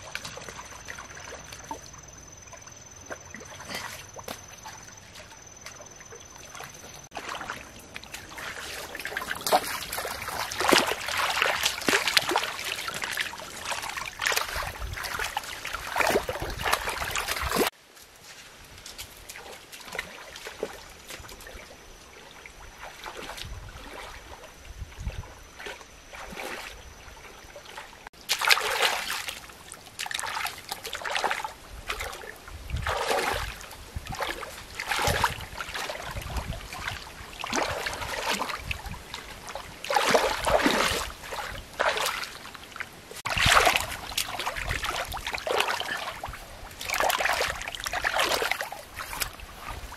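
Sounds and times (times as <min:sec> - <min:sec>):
muddy water splashing: 0:00.0 - 0:49.9.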